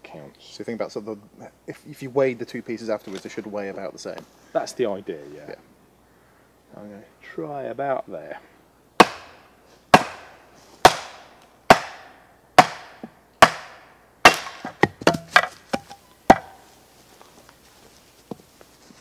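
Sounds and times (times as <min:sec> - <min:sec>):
mallet knocking on hatchet: 0:14.3 - 0:16.6.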